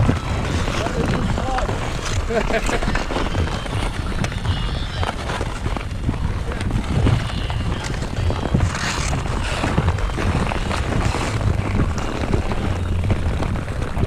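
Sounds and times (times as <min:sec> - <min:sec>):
skate blades scraping on ice: 0:00.0 - 0:14.0
wind buffeting microphone: 0:00.0 - 0:14.0
hockey sticks and puck clicking: 0:07.0 - 0:12.8.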